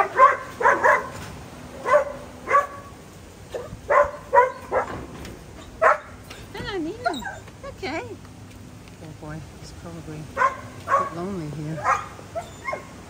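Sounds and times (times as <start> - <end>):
small dog barking: 0.0 - 1.2, 1.8 - 2.9, 3.5 - 5.0, 5.8 - 6.2, 10.4 - 11.2, 11.8 - 13.0.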